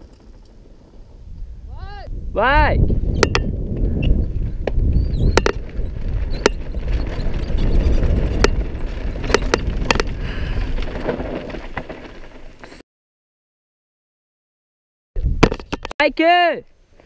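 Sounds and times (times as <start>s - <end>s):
tyre and wind rumble: 0.0s - 12.8s, 15.2s - 16.2s
bike chain clacking and rattling: 5.2s - 12.8s.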